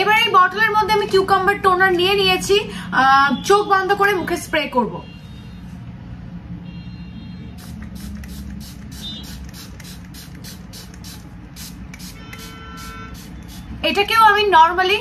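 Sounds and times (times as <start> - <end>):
spray bottle spritzing: 7.6 - 13.8.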